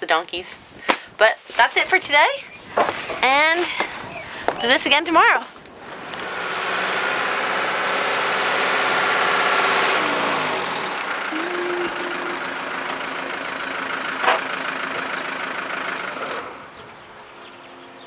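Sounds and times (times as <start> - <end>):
vehicle engine running: 5.7 - 18.0.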